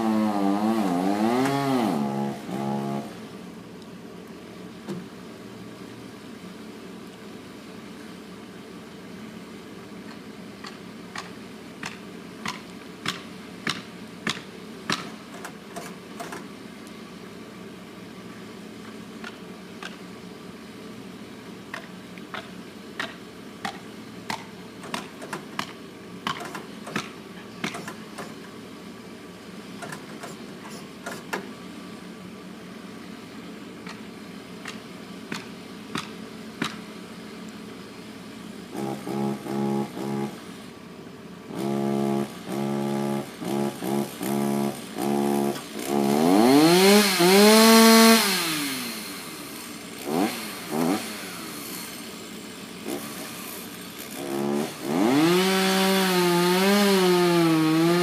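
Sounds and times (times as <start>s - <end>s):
sharp knocks on wood: 10.6s - 15.1s, 34.7s - 36.8s.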